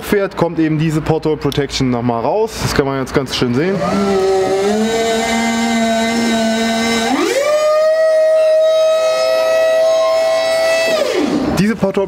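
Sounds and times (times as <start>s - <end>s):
hydraulic pump motor whining: 3.5s - 11.6s.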